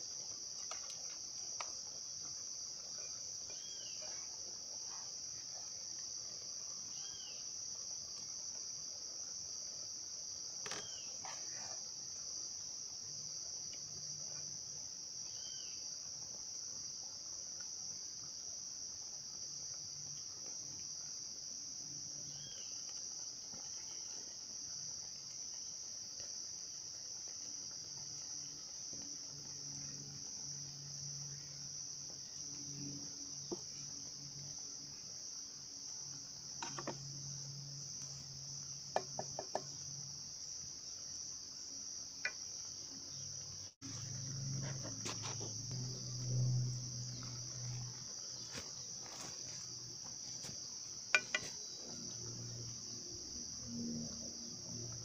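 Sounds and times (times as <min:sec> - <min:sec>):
high-pitched insect drone: 0:27.5 - 0:55.0.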